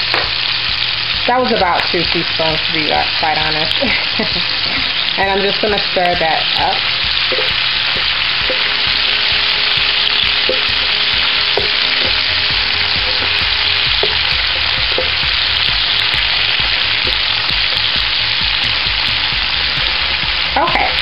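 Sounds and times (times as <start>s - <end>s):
vegetables sizzling in oil: 0.0s - 21.0s
spatula scraping and knocking pan: 6.6s - 19.5s.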